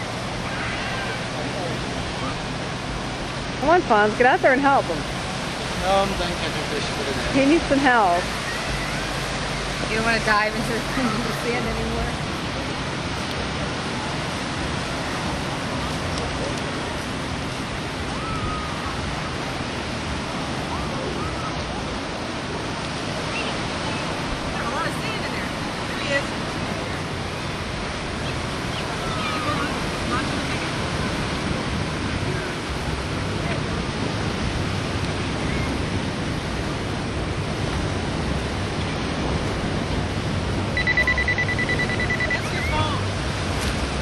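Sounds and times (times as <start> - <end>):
ocean surf washing onto beach: 0.0 - 44.0
wind on microphone: 0.0 - 44.0
high electronic beep: 40.8 - 42.8.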